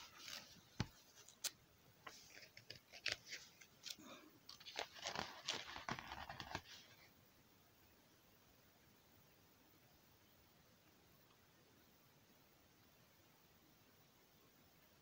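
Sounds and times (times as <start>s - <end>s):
book pages turning: 0.0s - 7.0s.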